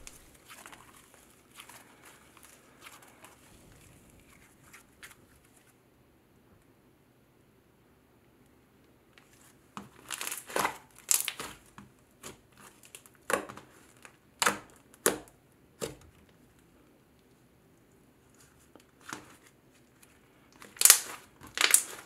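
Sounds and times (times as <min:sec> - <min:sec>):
slime squished by hand crackling: 0:09.9 - 0:16.0, 0:20.6 - 0:22.0.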